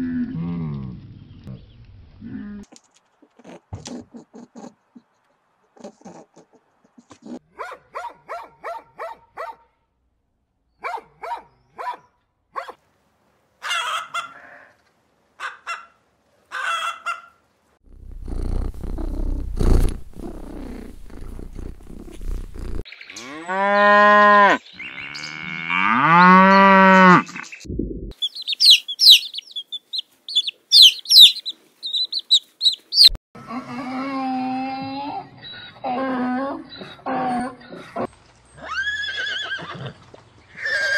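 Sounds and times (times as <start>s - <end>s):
high quick chirps: 28.2s - 33.2s
long animal calls: 28.2s - 37.7s.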